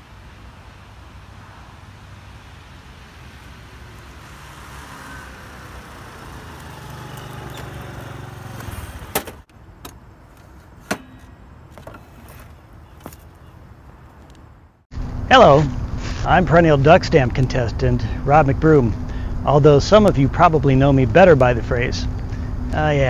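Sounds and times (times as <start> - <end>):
scooter engine: 1.9 - 13.2.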